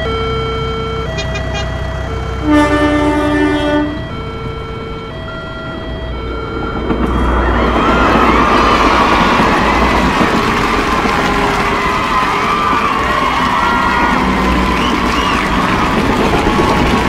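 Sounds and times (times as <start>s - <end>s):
passing train rushing: 0.0s - 17.0s
railroad crossing alarm: 0.0s - 17.0s
train horn blast: 1.2s - 1.8s, 2.4s - 4.2s, 11.0s - 16.9s.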